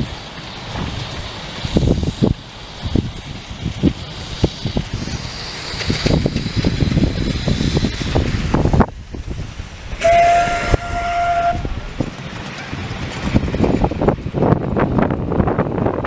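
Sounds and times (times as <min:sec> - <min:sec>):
steam hissing: 0:00.0 - 0:16.0
train wheels clattering on track: 0:00.0 - 0:16.0
steam locomotive whistle: 0:09.9 - 0:11.8.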